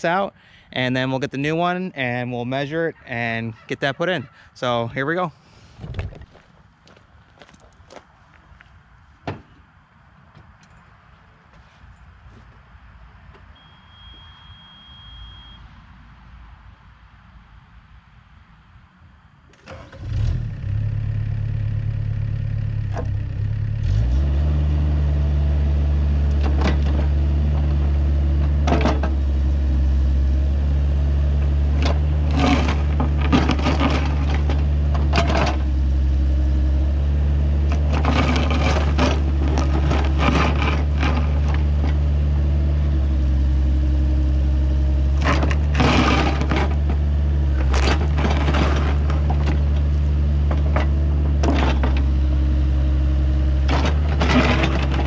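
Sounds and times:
diesel engine running: 19.7 - 55.0
excavator bucket scraping and clanking: 26.0 - 43.3, 45.0 - 55.0.

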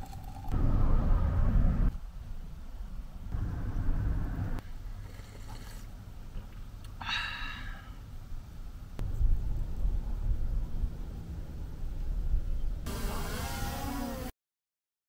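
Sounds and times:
car engine and road rumble: 0.0 - 5.0, 8.0 - 12.9.

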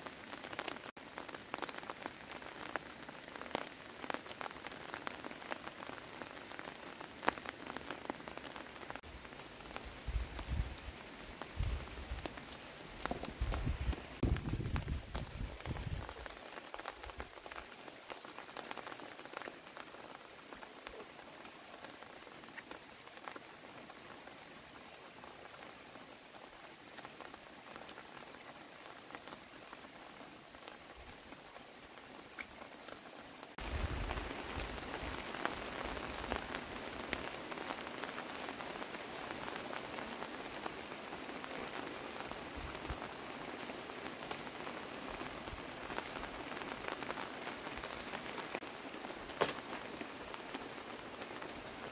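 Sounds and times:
rain on leaves and grass: 0.0 - 51.9
raindrop ticks: 11.6 - 23.9, 44.2 - 51.8.

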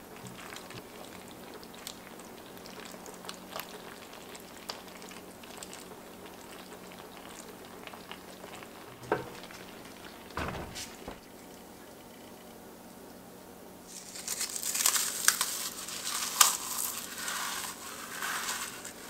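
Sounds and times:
sauce simmering in a pot: 0.0 - 10.4, 11.3 - 19.0
pot knocking on hot plate: 9.0 - 9.5.

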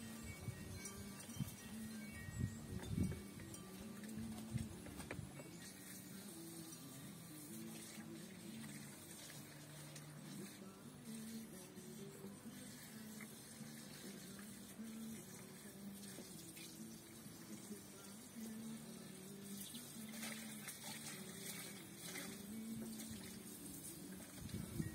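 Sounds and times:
faint trickling water: 5.4 - 24.9.

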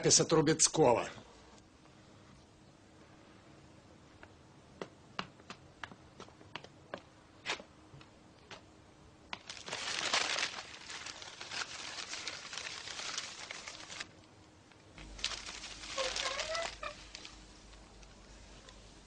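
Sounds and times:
newspapers rustling and crinkling: 9.4 - 14.2, 15.0 - 19.0.

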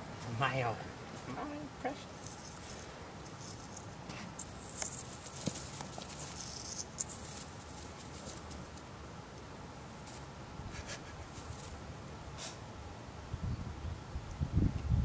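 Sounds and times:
puppy rustling in dry grass: 0.0 - 8.9, 9.8 - 12.5
outdoor background hiss: 0.0 - 15.0.

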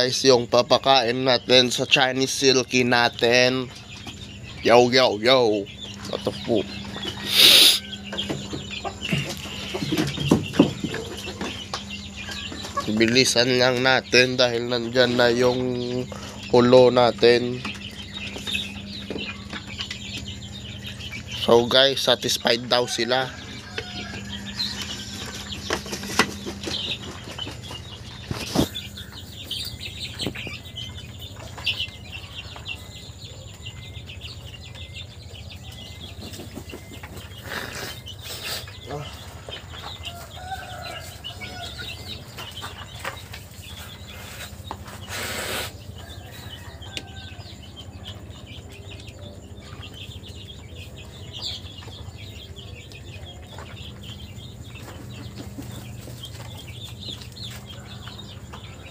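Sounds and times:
chickens clucking softly: 0.0 - 58.9
chickens pecking feed from a dish: 8.2 - 21.8, 22.5 - 32.8, 35.6 - 45.2.

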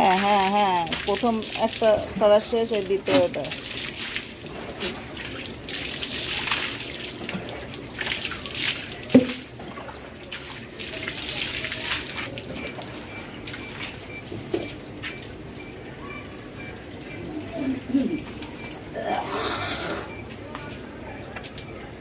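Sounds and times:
hose water splashing on concrete: 0.0 - 15.4.

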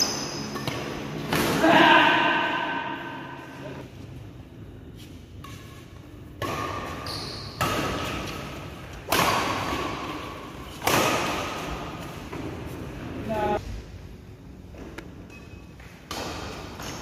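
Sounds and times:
rackets striking shuttlecock: 0.0 - 1.6, 5.4 - 12.5.

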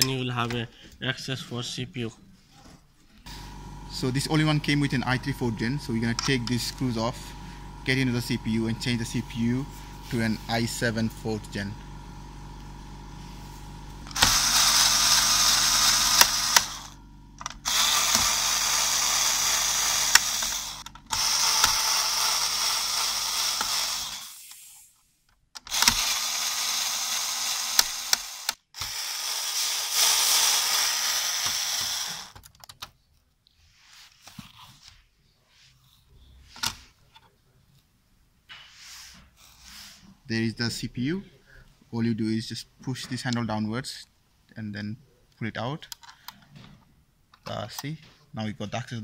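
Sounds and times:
electric screwdriver running: 3.3 - 24.6, 25.6 - 32.4.

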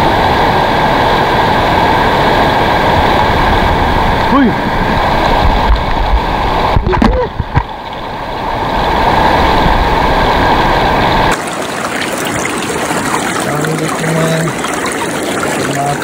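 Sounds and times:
river water rushing: 0.0 - 16.0
water splashing through a net: 6.7 - 16.0.

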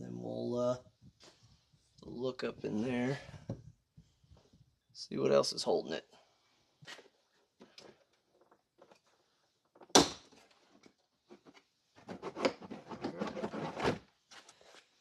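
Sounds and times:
plastic rattling and scraping: 7.0 - 14.9.

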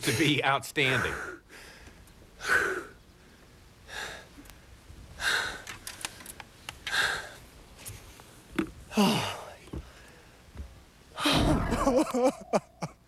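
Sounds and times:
man breathing hard: 1.0 - 3.0, 3.8 - 4.3, 5.2 - 5.8, 6.9 - 7.4.

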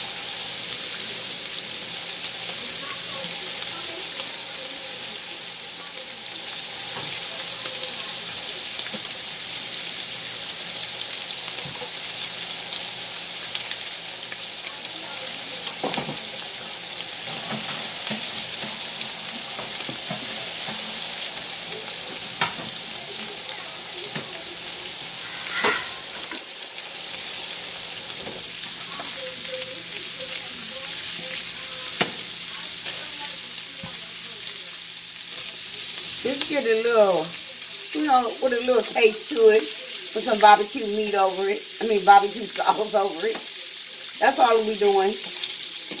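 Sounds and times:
sausages sizzling in a skillet: 0.0 - 46.0.

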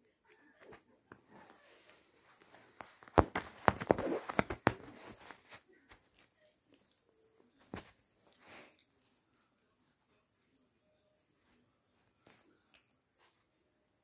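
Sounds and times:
cat rustling on duvet: 1.2 - 6.2
stick clicks and scuffs: 2.8 - 5.6.

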